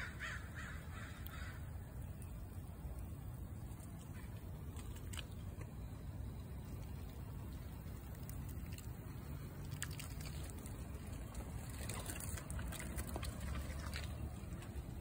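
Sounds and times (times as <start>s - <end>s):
low outdoor rumble: 0.0s - 15.0s
squirrels scrambling through branches: 6.6s - 15.0s.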